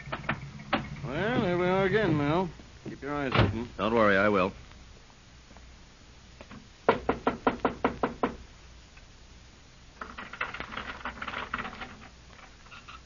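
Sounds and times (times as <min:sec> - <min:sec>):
knocking on a door: 0:06.9 - 0:08.4.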